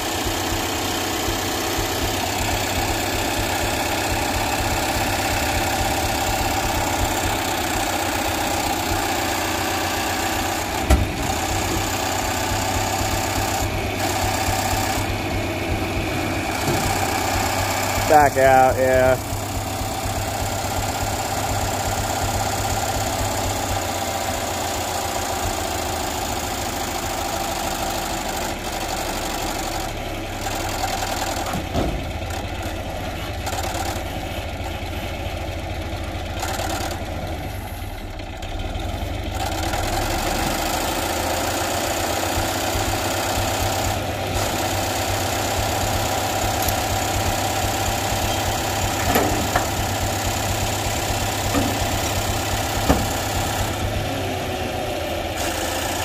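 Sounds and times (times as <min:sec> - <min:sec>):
vehicle engine idling: 0:00.0 - 0:56.0.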